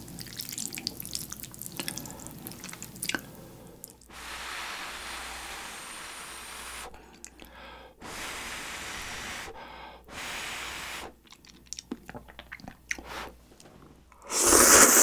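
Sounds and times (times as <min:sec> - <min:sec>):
man slurping noodles: 0:14.2 - 0:15.0.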